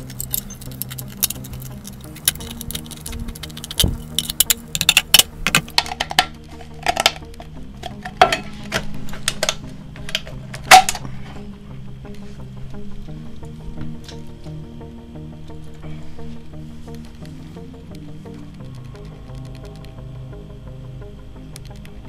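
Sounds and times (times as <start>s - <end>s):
tin cans clinking and clattering: 0.0s - 11.0s
soft background music: 0.0s - 22.0s.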